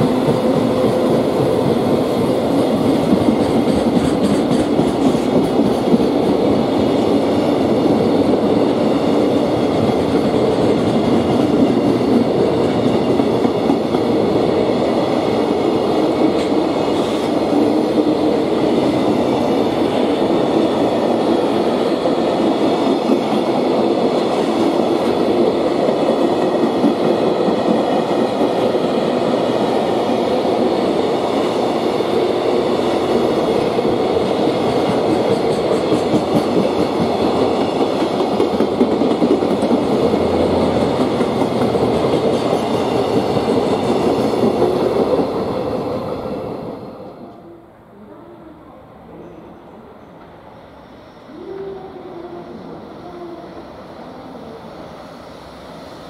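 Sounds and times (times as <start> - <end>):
freight train wheels clattering: 0.0 - 6.7.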